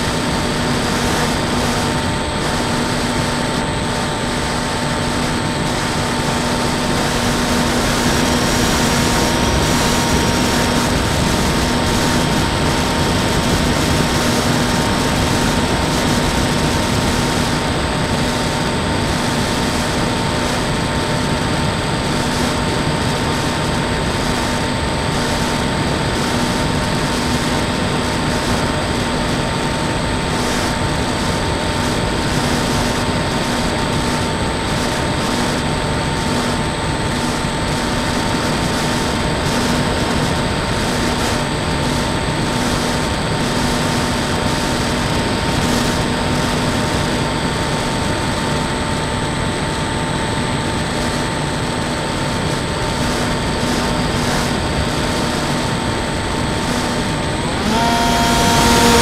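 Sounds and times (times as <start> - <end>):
rushing wind noise: 0.0 - 46.2
model plane motor and propeller: 0.0 - 59.0.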